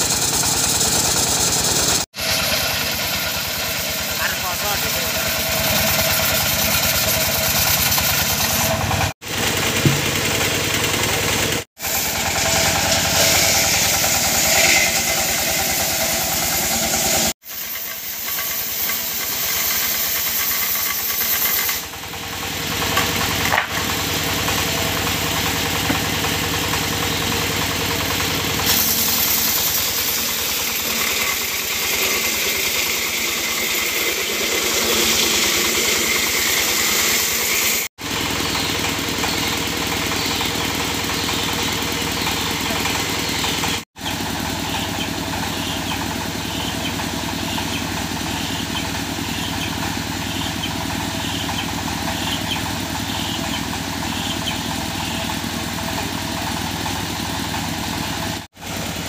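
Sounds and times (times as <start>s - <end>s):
sawmill engine running: 0.0s - 59.0s
spinning saw blade hiss: 11.8s - 21.9s, 28.6s - 37.9s.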